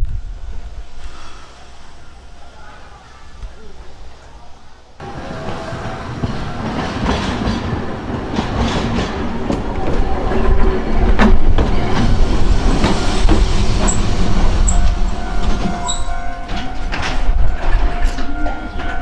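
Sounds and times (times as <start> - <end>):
tram rumbling: 0.0 - 19.0
wheels clicking over rail joints: 5.0 - 19.0
high wheel squeaks: 11.7 - 19.0.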